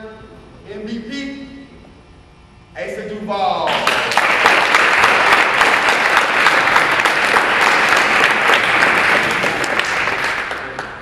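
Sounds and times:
crowd applauding: 3.7 - 11.0.

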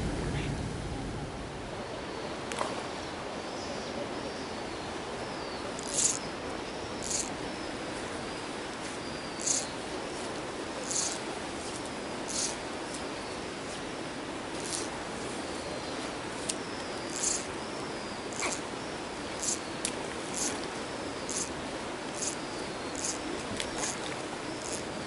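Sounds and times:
steady outdoor hiss: 0.0 - 25.0
faint bird calls: 5.3 - 8.4, 9.0 - 9.8, 10.7 - 11.3, 12.2 - 13.3, 16.6 - 25.0.

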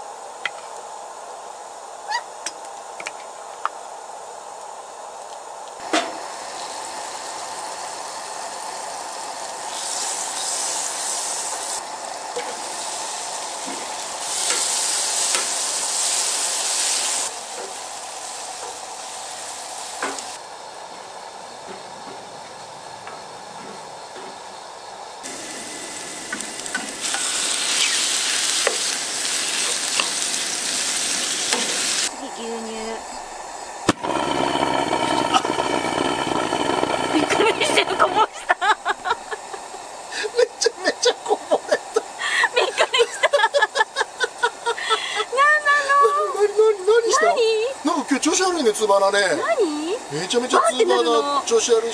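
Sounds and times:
gas stove hiss: 0.0 - 51.9
onions sizzling in a frying pan: 2.1 - 21.6, 24.8 - 51.9
wooden spatula scraping a pan: 34.0 - 38.4.

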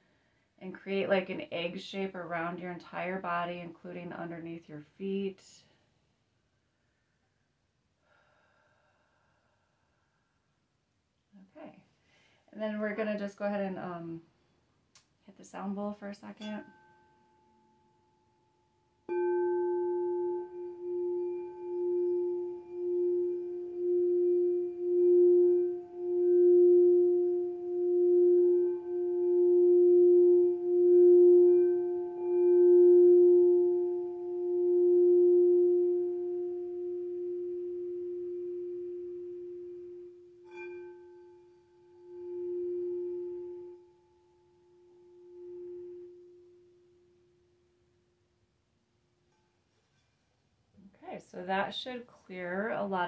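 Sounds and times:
singing bowl ringing: 16.4 - 47.7
mallet striking bowl: 19.1 - 30.4.

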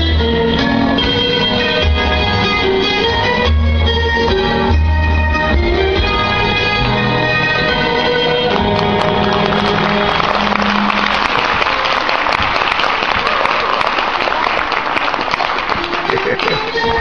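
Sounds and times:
audience applauding: 8.3 - 17.0
dance music: 15.9 - 17.0.

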